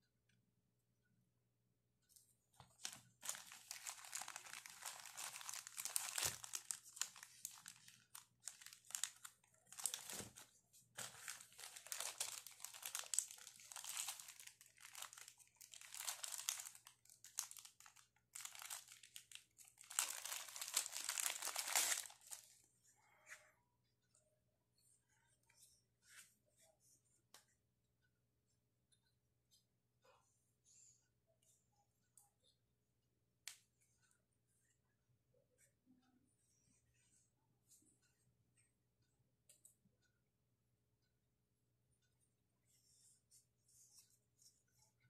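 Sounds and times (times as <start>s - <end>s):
plastic bags crinkling: 2.8s - 22.5s.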